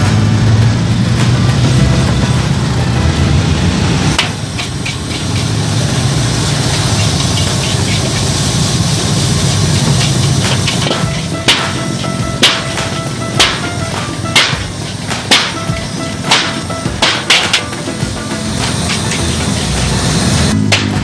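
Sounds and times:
gas burner rushing: 0.0s - 21.0s
food frying hiss: 3.7s - 21.0s
metal clang: 4.1s - 5.8s, 6.5s - 8.3s, 9.6s - 21.0s
metal spatula scraping a wok: 4.2s - 12.7s, 18.4s - 21.0s.

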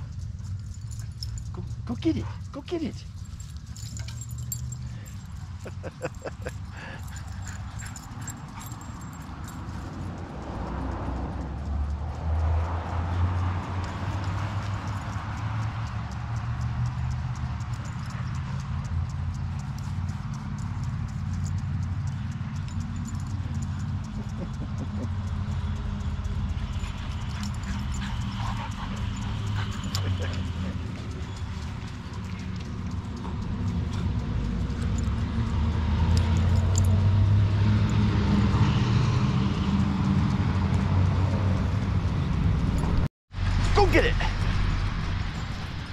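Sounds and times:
steady low rumble: 0.0s - 37.2s, 39.5s - 45.9s
low rumble: 40.4s - 45.9s.

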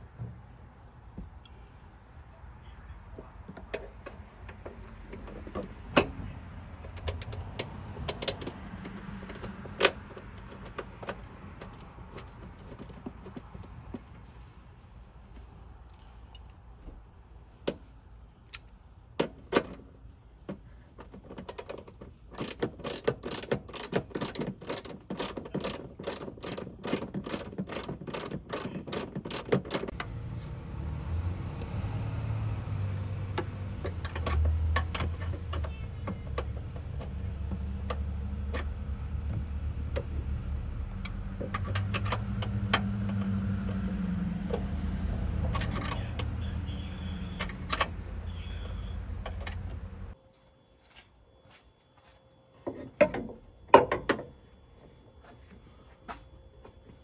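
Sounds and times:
ratchet wrench clicking: 22.4s - 30.0s.

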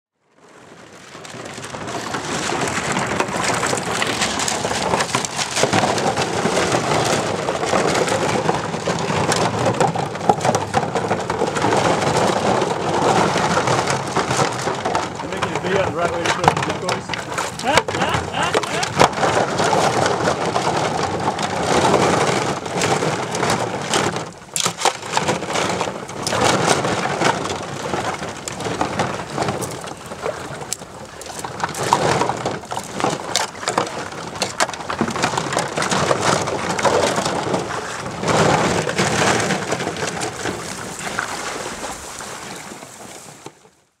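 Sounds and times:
shallow water splashing: 0.7s - 43.7s
plastic decoys clattering: 2.1s - 41.8s
cords rustling: 15.3s - 19.2s.

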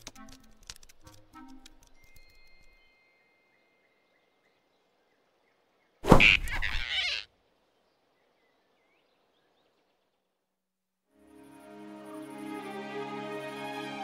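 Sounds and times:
cartoon whoosh and thump: 6.0s - 7.0s
startled squeak: 6.2s - 7.2s.

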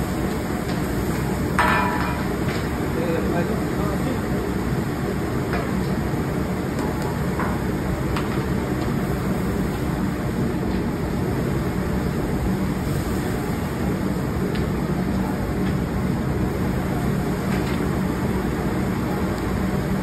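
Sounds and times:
burner rushing with low hum: 0.0s - 20.0s.

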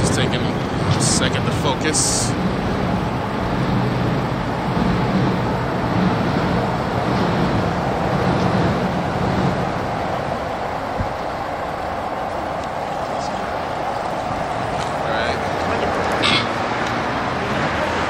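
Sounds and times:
cars passing: 0.0s - 18.0s
engine and road rumble: 0.0s - 18.0s.

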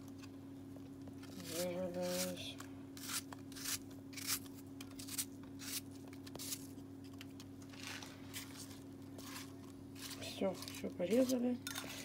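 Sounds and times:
knife slicing apple: 1.2s - 6.7s, 8.4s - 12.0s.

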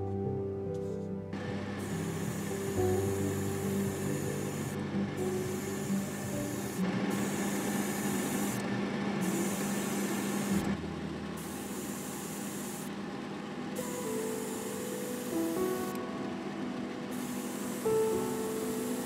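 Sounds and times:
airbrush hissing: 1.6s - 8.6s, 9.2s - 10.8s, 11.4s - 12.9s, 13.8s - 16.0s, 17.1s - 19.0s.

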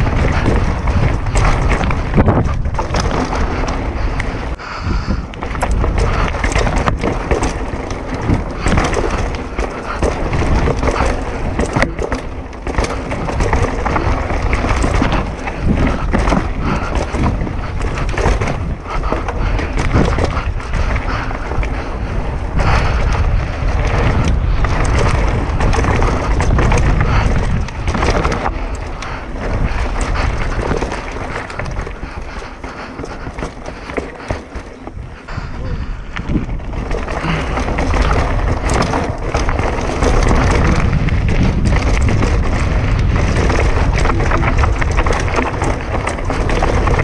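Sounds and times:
bike rattling over bumps: 0.0s - 47.0s
tyres rushing on dirt: 0.0s - 47.0s
wind on microphone: 0.0s - 47.0s.

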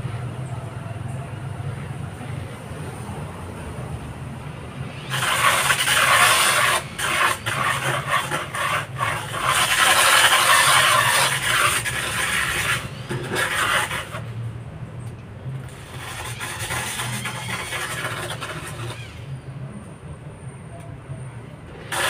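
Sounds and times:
flap disc scraping a wall: 5.1s - 14.3s, 15.9s - 19.0s
drill motor hum: 15.7s - 19.4s.

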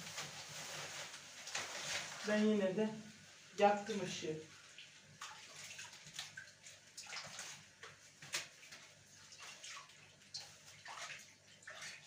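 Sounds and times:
water splashing in plastic bowl: 3.6s - 12.0s.

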